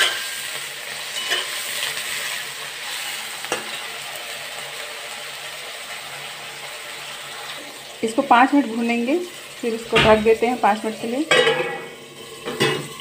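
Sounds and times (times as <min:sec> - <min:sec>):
eggplant sizzling in hot oil: 0:00.0 - 0:13.0
metal spatula scraping pan: 0:01.0 - 0:02.0.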